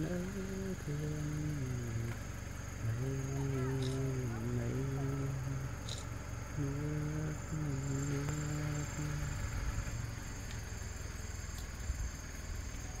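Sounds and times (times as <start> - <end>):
engine low rumble: 0.0 - 13.0
steady pitched hum: 0.0 - 13.0
thin high steady tone: 2.8 - 9.6.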